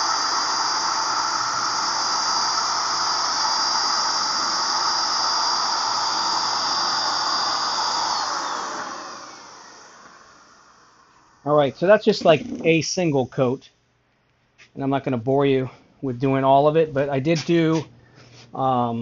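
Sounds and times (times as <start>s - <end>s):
electric paint spray gun whine: 0.0s - 12.8s.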